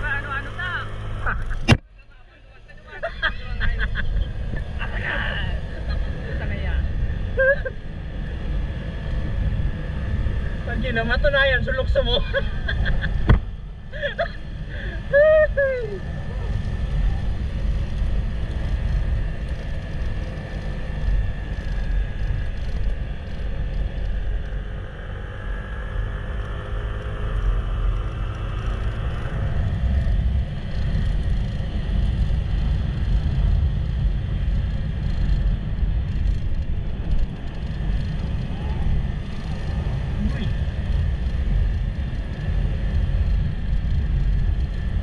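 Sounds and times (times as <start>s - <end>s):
moving vehicle rumble: 0.0s - 45.0s.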